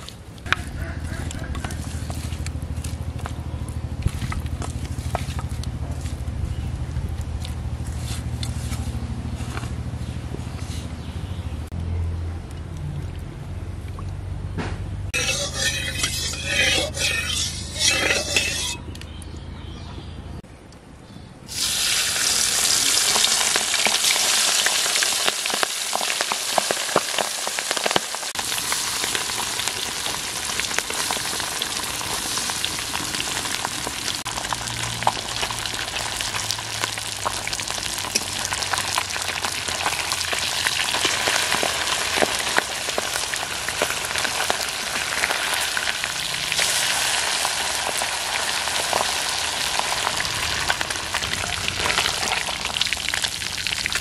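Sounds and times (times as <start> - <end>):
fish sizzling in hot oil: 21.5 - 54.0.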